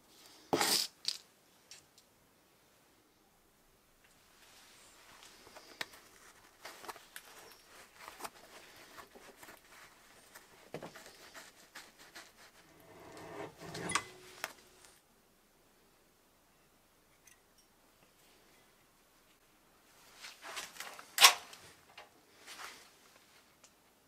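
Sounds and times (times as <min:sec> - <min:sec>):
small metallic clicks and scrapes: 0:12.7 - 0:14.6.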